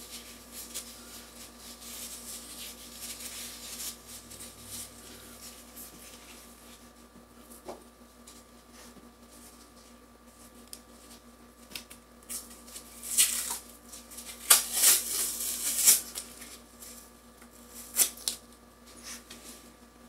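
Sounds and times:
wrapping crinkling: 0.0 - 6.4, 11.7 - 17.0.

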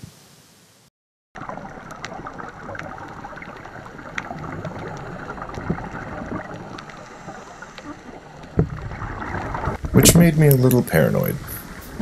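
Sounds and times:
muffled underwater rush: 1.4 - 12.0
sharp clicks and crackles: 1.6 - 10.8.

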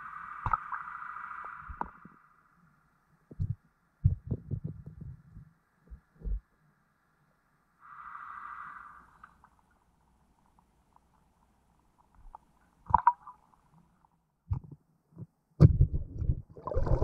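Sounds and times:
dull underwater thumps: 3.3 - 5.2, 14.5 - 17.0.

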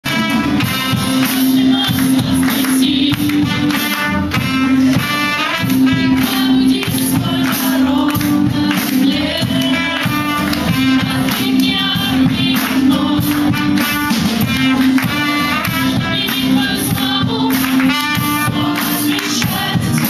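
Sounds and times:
keyboard: 0.0 - 20.0
trumpet: 0.0 - 20.0
acoustic guitar: 0.1 - 20.0
women singing: 0.6 - 20.0.

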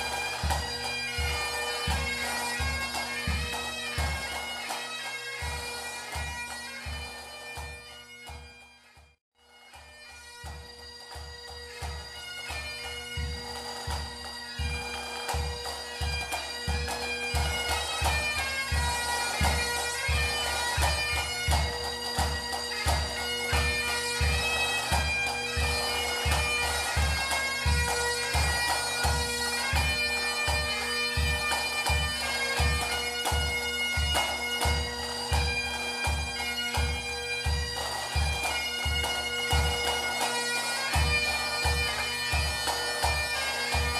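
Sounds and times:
bagpipes playing a tune: 0.0 - 43.9
drum beats: 12.8 - 35.5.

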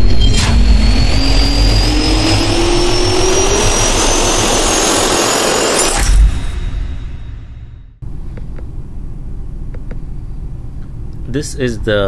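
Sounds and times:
jet engine spooling up: 0.0 - 7.6.

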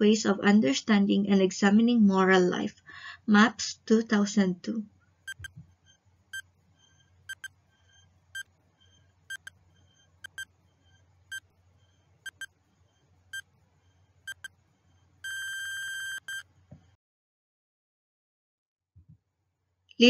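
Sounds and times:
clock ticking: 5.3 - 5.6, 7.3 - 7.5, 9.3 - 9.5, 10.2 - 10.5, 12.3 - 12.5, 14.3 - 14.5
ringing alarm buzz: 5.3 - 13.5, 14.3 - 14.5, 15.2 - 16.4.

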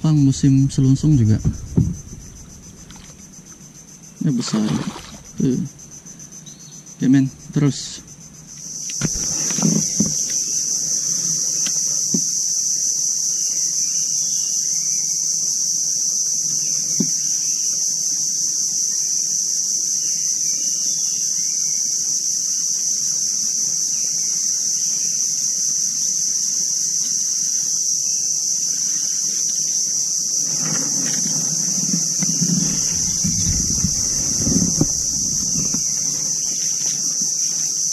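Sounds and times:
faint chirps: 0.0 - 12.2
high-pitched insect chorus: 0.0 - 37.9
soft knocks: 1.2 - 3.3, 30.4 - 37.0.

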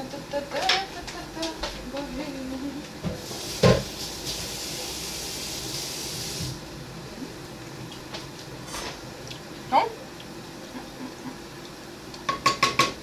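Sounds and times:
steady hiss: 0.0 - 7.5.

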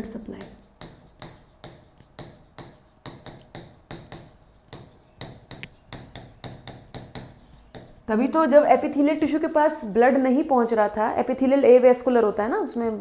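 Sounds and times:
chalk tapping on blackboard: 0.0 - 8.1.

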